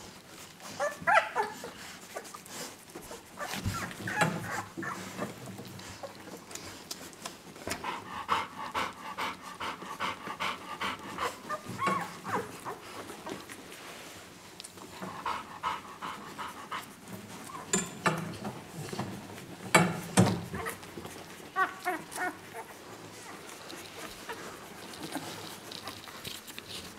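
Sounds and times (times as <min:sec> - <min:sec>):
puppies suckling smacks: 0:00.1 - 0:17.7, 0:18.3 - 0:26.9
puppies squeaking: 0:03.4 - 0:05.3, 0:11.4 - 0:12.8.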